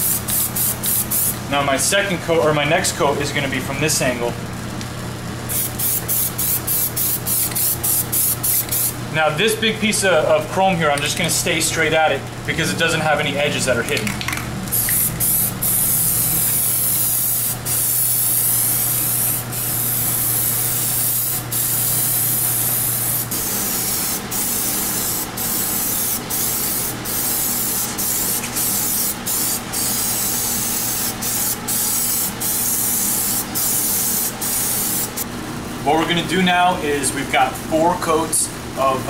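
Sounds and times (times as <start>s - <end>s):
aerosol can spraying: 0.0s - 1.4s, 5.5s - 9.0s, 14.7s - 35.2s.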